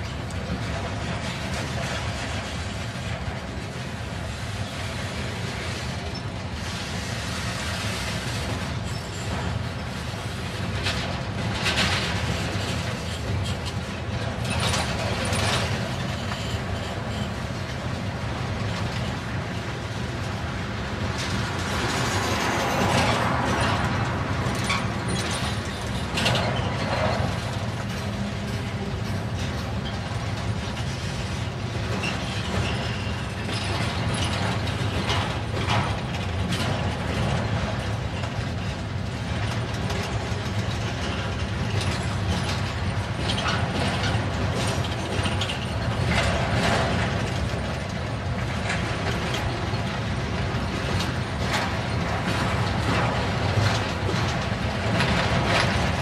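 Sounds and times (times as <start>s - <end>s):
train wheels rumbling on rail: 0.0s - 56.0s
metallic clanks and rattles: 10.7s - 18.0s, 22.8s - 56.0s.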